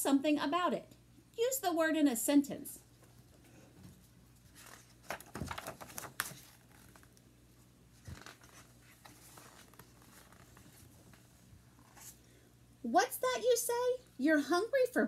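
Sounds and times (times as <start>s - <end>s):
book pages turning: 4.4s - 7.2s, 7.9s - 12.2s.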